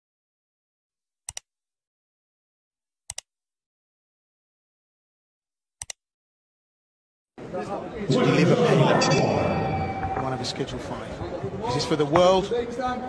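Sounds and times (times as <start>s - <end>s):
mouse clicks: 3.1s - 3.3s, 5.8s - 6.0s.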